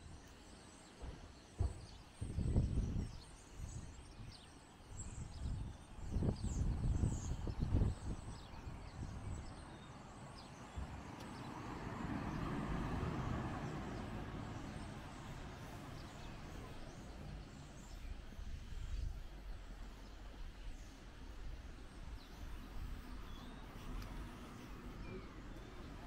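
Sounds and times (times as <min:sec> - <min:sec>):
wind buffeting microphone: 0:01.0 - 0:26.0
vehicle passing: 0:10.8 - 0:17.7.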